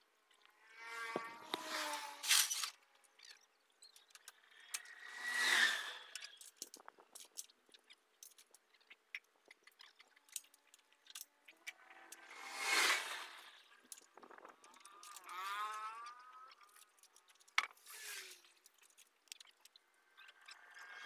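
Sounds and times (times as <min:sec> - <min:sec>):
metallic clinks and scrapes: 0:04.4 - 0:07.4.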